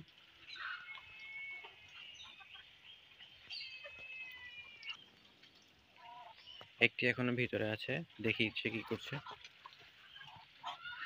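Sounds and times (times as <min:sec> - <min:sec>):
high-pitched poultry calls: 0:00.4 - 0:05.2, 0:05.9 - 0:06.6, 0:08.7 - 0:11.0.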